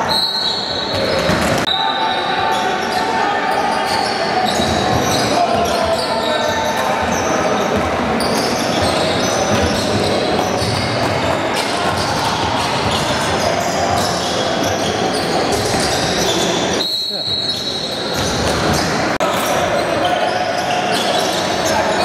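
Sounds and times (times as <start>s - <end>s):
basketball bouncing on court: 0.9s - 1.7s.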